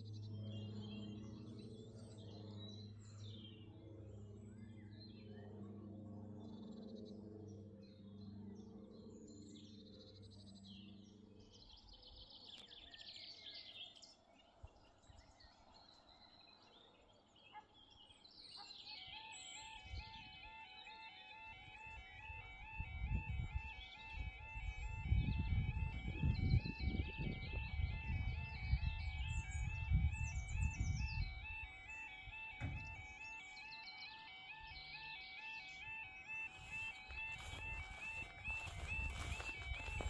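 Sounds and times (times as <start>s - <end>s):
birds singing and chirping: 0.0s - 40.0s
level crossing alarm warble: 18.9s - 40.0s.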